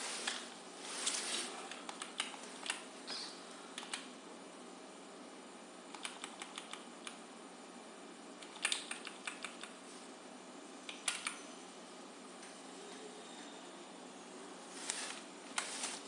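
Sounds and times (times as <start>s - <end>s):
steady hiss: 0.0s - 4.3s, 14.0s - 16.0s
computer keyboard keys clicking: 1.7s - 2.8s, 3.8s - 4.1s, 5.9s - 7.2s, 8.4s - 9.8s, 10.9s - 11.4s.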